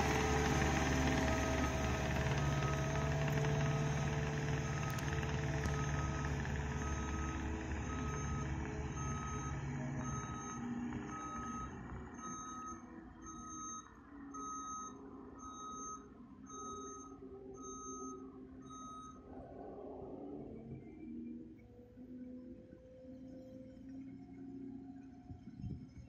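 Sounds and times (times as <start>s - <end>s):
tracks of loader: 0.0s - 12.9s
diesel engine rumble: 0.0s - 26.0s.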